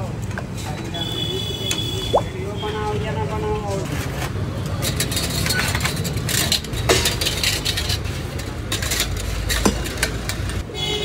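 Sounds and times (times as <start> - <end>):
low rumble of street traffic: 0.0 - 11.0
metal moulds clinking and scraping: 4.0 - 10.6.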